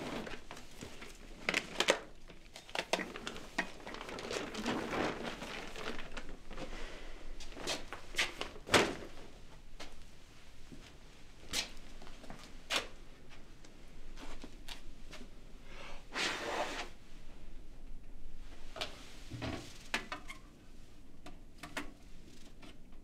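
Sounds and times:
brief scrape: 0:16.1 - 0:17.0.

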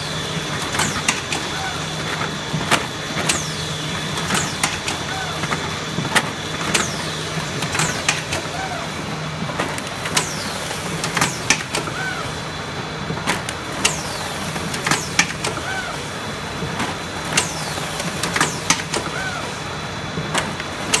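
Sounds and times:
machine motor hum: 0:00.0 - 0:21.0
sharp machine clacks: 0:00.6 - 0:01.5, 0:02.7 - 0:05.1, 0:06.7 - 0:08.5, 0:13.3 - 0:15.6, 0:17.3 - 0:19.2, 0:20.4 - 0:21.0.

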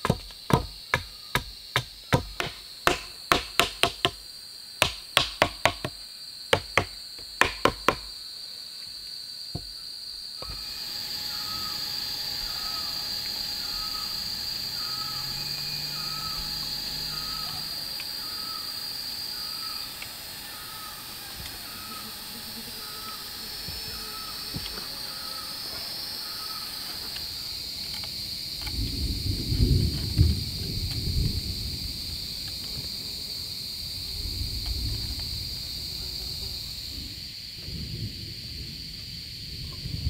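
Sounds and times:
hand tool knocking on wood: 0:00.0 - 0:04.2, 0:04.8 - 0:08.1
high insect drone: 0:00.0 - 0:40.0.

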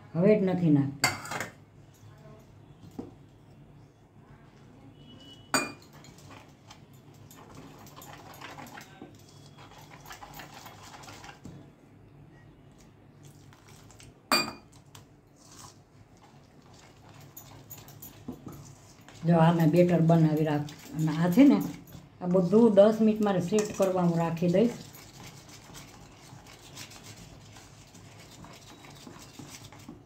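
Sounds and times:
whisk scraping metal bowl: 0:07.3 - 0:11.5, 0:15.4 - 0:30.0.

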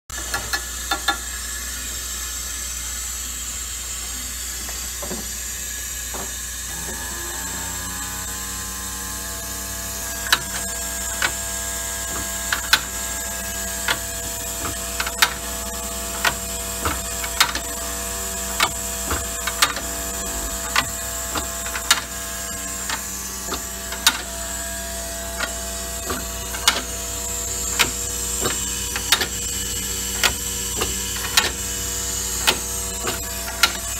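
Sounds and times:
motor hum: 0:00.2 - 0:33.9
sharp mechanical clicks: 0:18.5 - 0:24.4, 0:25.4 - 0:27.0, 0:27.6 - 0:33.9.

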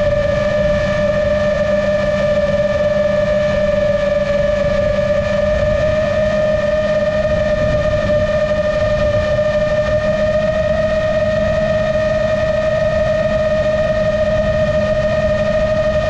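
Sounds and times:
drone motors whining: 0:00.0 - 0:16.0
wind rumble on microphone: 0:00.0 - 0:16.0.

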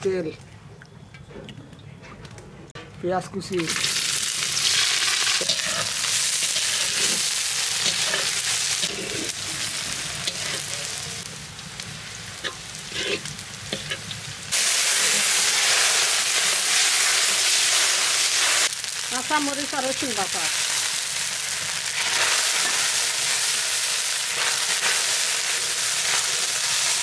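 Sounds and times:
onion sizzling in oil: 0:03.4 - 0:27.0
metal spatula scraping wok: 0:03.7 - 0:11.1, 0:12.4 - 0:17.8.

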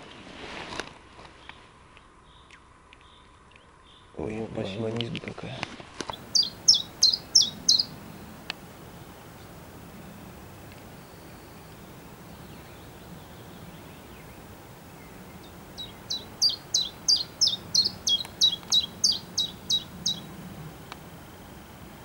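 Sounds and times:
warbler singing high notes: 0:06.1 - 0:21.4.

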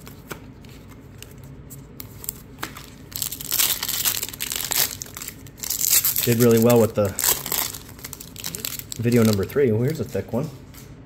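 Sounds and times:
foil wrapper crinkling and tearing: 0:02.0 - 0:10.5.

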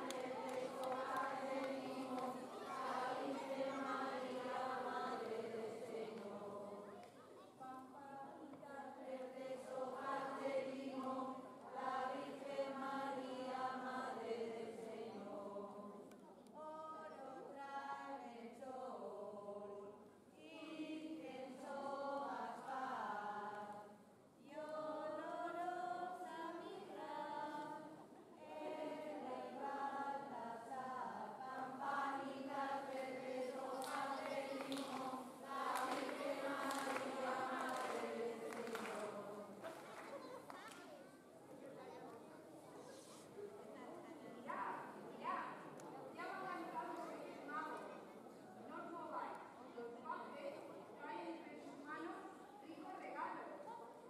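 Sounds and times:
group singing without instruments: 0:00.0 - 0:07.0, 0:07.7 - 0:40.1.

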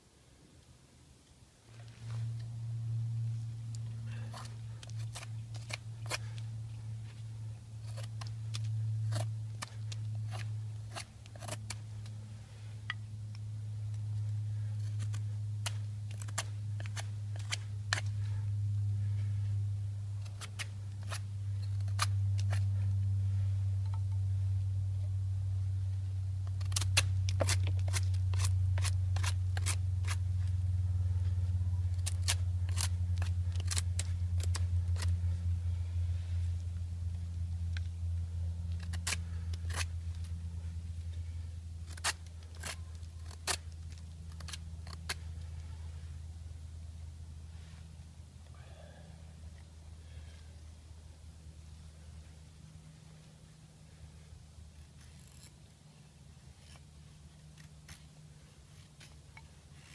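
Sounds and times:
low hum: 0:00.0 - 0:59.9.

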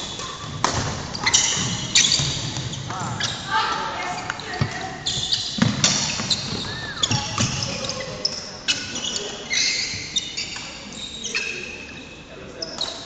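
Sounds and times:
racket hitting shuttlecock: 0:00.1 - 0:03.1
shoes squeaking and thudding on floor: 0:00.4 - 0:03.4, 0:04.2 - 0:10.6.

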